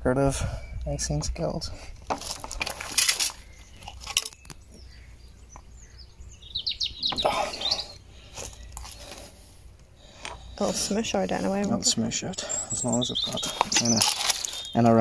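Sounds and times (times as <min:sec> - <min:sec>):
bird rising chirps: 0:03.1 - 0:09.1, 0:11.9 - 0:15.0.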